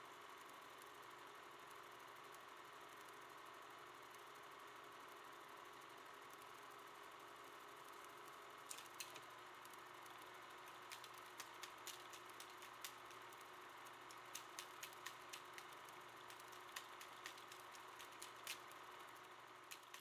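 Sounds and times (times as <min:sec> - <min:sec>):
faint steady hum: 0:00.0 - 0:20.0
sharp clicks: 0:08.7 - 0:13.4, 0:14.0 - 0:18.8, 0:19.7 - 0:20.0.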